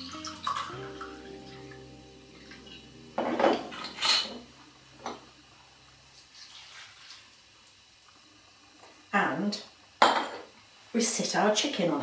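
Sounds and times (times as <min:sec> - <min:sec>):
bottle knocking on worktop: 0:03.2 - 0:03.9.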